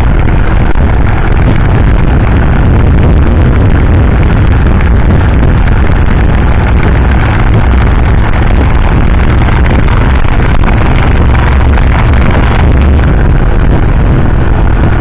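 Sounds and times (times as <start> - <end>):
low engine drone: 0.0 - 15.0
wind rush over microphone: 0.0 - 15.0.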